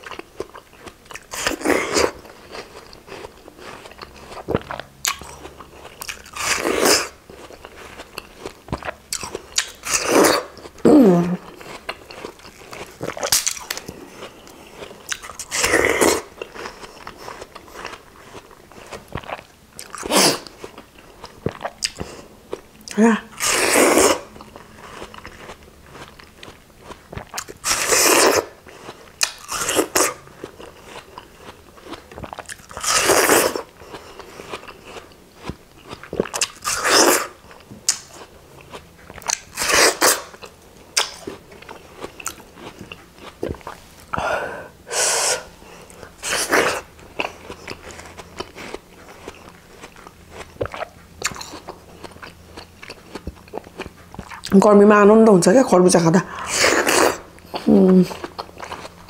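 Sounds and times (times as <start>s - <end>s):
chewing: 0.0s - 10.8s, 11.4s - 44.3s, 45.4s - 54.6s, 56.3s - 59.0s
wet crunchy watermelon bites: 0.1s - 22.6s, 23.4s - 44.2s.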